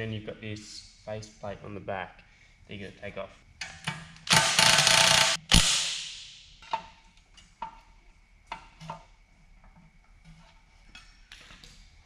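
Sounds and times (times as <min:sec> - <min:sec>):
cordless power tool running: 0:04.3 - 0:05.4.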